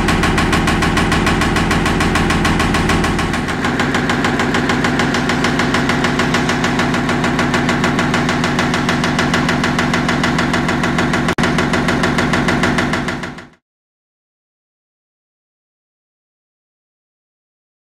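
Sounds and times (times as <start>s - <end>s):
steady hum: 0.0s - 13.2s.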